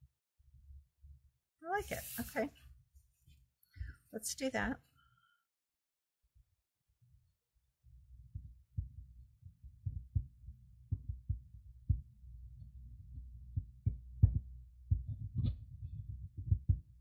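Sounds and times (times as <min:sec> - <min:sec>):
faint low rumble: 0:07.8 - 0:17.0
muffled thumps and knocks: 0:13.8 - 0:17.0.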